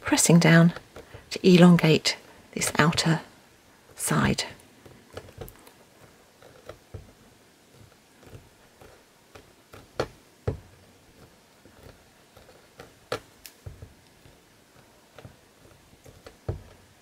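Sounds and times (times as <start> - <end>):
light taps and knocks: 3.9 - 16.9.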